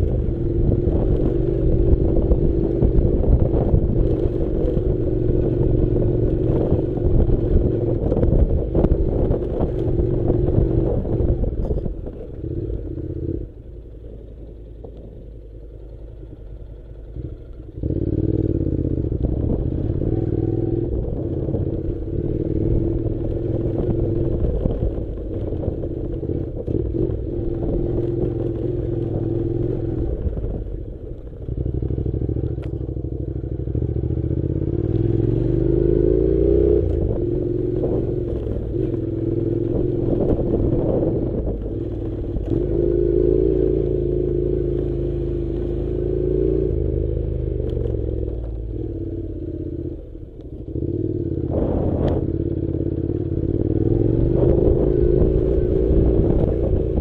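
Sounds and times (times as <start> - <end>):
motorcycle engine running: 0.0 - 57.0.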